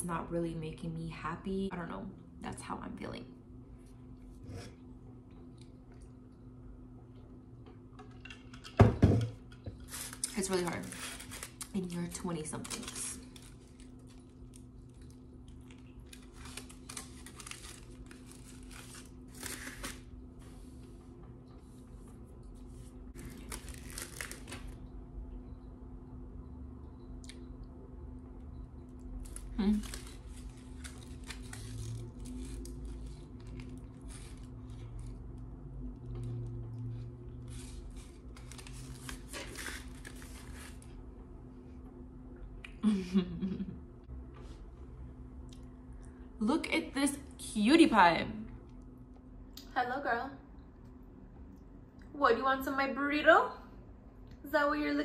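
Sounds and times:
steady low hum: 0:00.0 - 0:55.0
foil wrapper crinkling: 0:09.7 - 0:20.2, 0:23.2 - 0:24.8, 0:29.2 - 0:35.2, 0:37.5 - 0:40.9.

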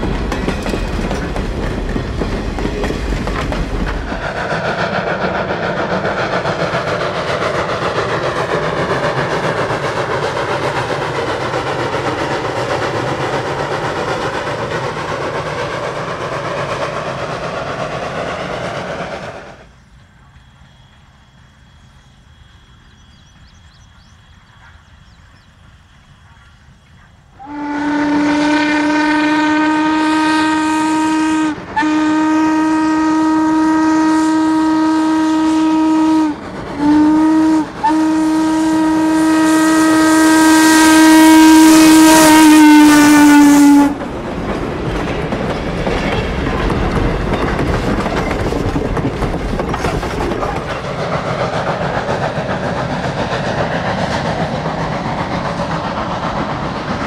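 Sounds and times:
train cars clattering on rails: 0:00.0 - 0:22.0, 0:36.3 - 0:36.9, 0:41.9 - 0:57.0
steam locomotive whistle: 0:27.4 - 0:44.0.

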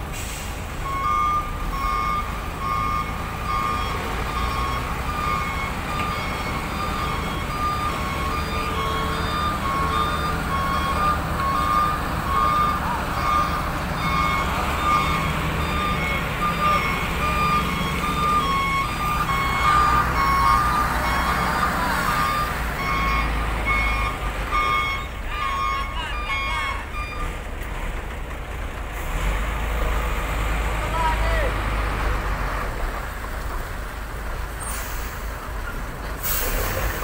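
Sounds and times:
diesel engine running: 0:00.0 - 0:37.0
truck reversing alarm beeping: 0:00.1 - 0:27.7, 0:36.2 - 0:37.0.

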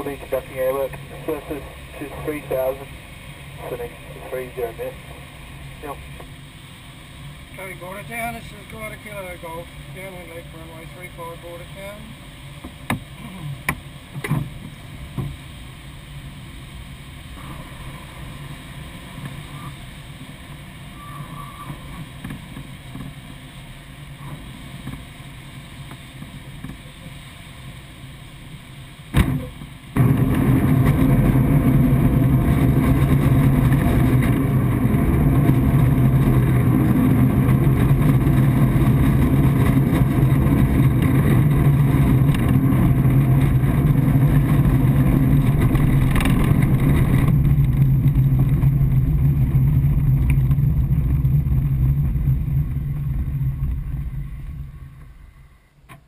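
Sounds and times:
airflow rush: 0:00.0 - 0:55.7
loud rumble with low hum: 0:00.0 - 0:56.0.

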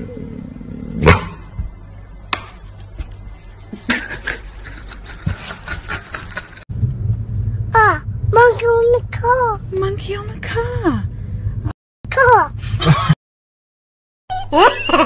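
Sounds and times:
rapid clicks and scrapes: 0:04.6 - 0:06.7.

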